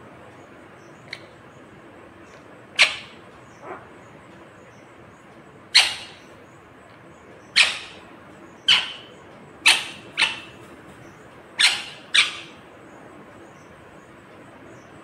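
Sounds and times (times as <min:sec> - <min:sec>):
parakeet screeching calls: 0:02.8 - 0:03.8, 0:05.7 - 0:06.3, 0:07.6 - 0:08.0, 0:08.6 - 0:10.6, 0:11.6 - 0:12.6.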